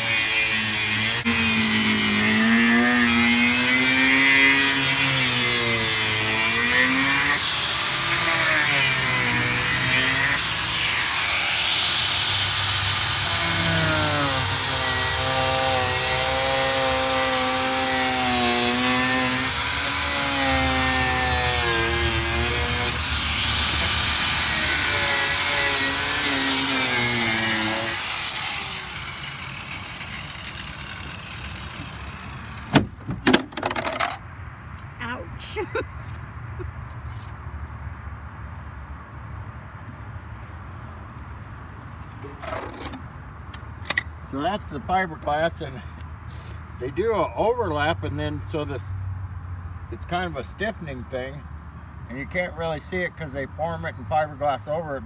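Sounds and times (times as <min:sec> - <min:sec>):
angle grinder cutting fiberglass: 0:00.0 - 0:32.7.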